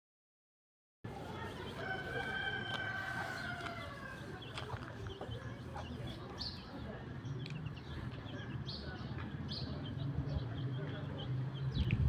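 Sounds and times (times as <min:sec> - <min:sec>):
rooster crowing: 0:01.8 - 0:04.2.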